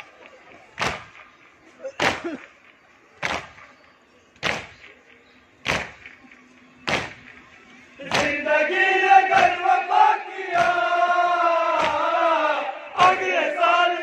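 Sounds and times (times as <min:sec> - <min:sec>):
hands slapping chests in unison: 0:00.2 - 0:01.3, 0:02.0 - 0:02.6, 0:03.2 - 0:03.6, 0:04.4 - 0:05.0, 0:05.6 - 0:06.2, 0:06.8 - 0:07.4, 0:08.0 - 0:08.4, 0:09.3 - 0:09.6, 0:10.5 - 0:10.9, 0:11.7 - 0:12.2, 0:13.0 - 0:13.3
men chanting in chorus: 0:08.0 - 0:14.0.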